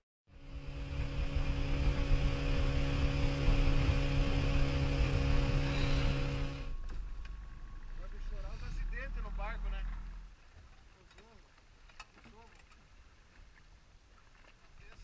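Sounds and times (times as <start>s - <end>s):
outboard motor running: 0.3s - 10.3s
water noise: 0.3s - 15.0s.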